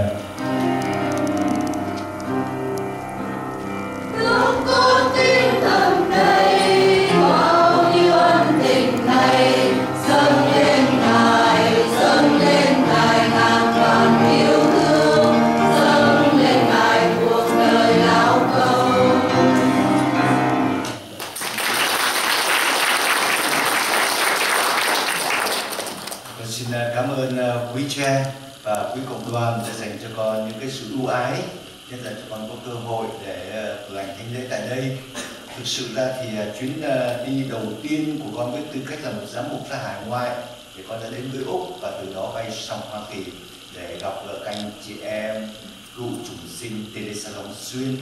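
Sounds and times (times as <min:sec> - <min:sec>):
instrumental accompaniment: 0:00.0 - 0:21.1
choir singing a hymn: 0:04.0 - 0:20.8
congregation applauding: 0:20.9 - 0:26.4.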